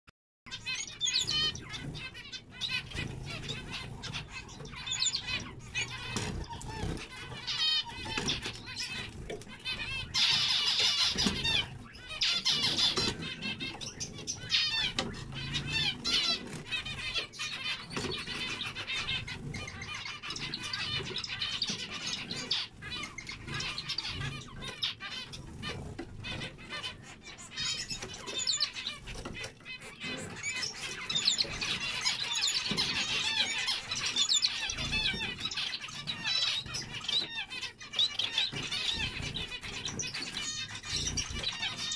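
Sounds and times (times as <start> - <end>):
finches chattering: 0.5 - 41.9
wings flapping: 1.2 - 27.0.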